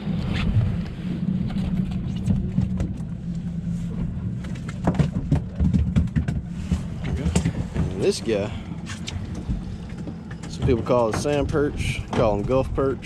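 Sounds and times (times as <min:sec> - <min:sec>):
outboard motor droning: 0:00.0 - 0:13.0.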